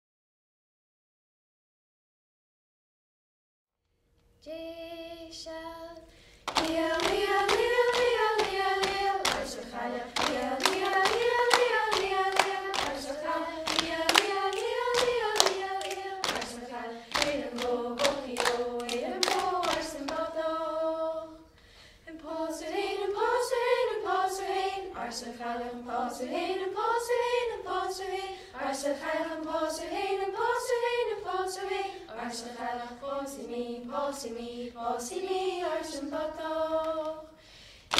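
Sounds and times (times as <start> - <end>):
young voices singing in unison: 4.5 - 37.6
rhythmic hand clapping: 6.4 - 20.4.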